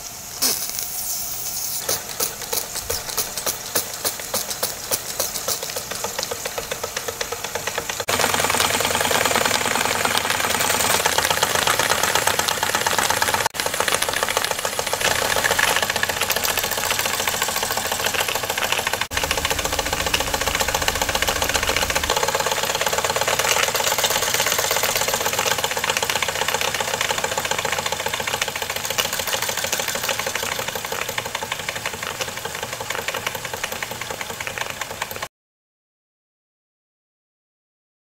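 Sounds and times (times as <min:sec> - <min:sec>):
steam hiss: 0:00.0 - 0:25.7
steam engine chuffing and clatter: 0:01.7 - 0:35.3.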